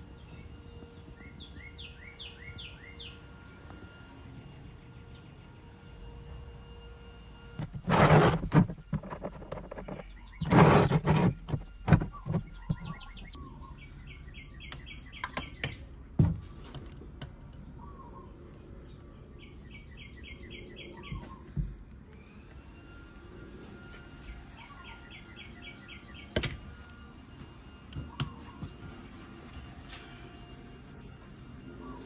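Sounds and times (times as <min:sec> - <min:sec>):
small bird chirping: 0:09.3 - 0:16.6.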